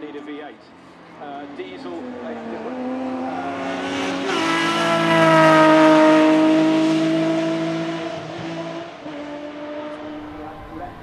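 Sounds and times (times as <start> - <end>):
racing buggy engine passing: 0.7 - 11.0.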